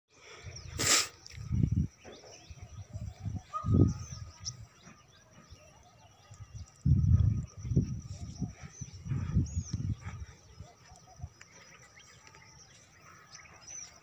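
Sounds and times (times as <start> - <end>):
small birds chirping: 0.1 - 14.0
low rumbles on microphone: 6.8 - 10.4.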